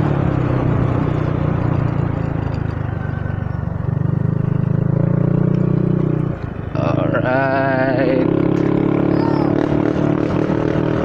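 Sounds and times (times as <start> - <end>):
motorcycle engine and exhaust: 0.0 - 11.0.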